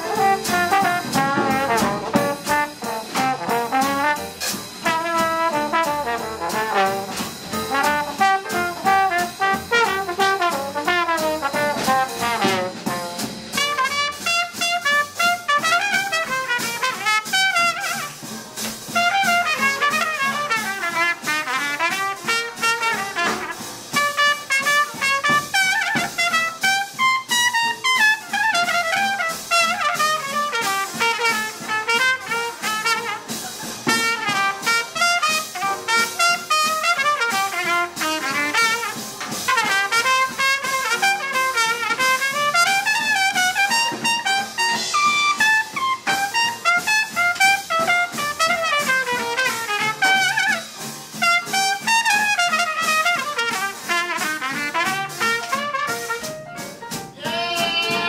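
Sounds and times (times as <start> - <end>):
upright bass: 0.0 - 14.0, 57.0 - 58.0
drums swinging beat: 0.0 - 58.0
piano: 0.0 - 58.0
trumpet melody: 0.0 - 58.0
guitar: 56.6 - 58.0.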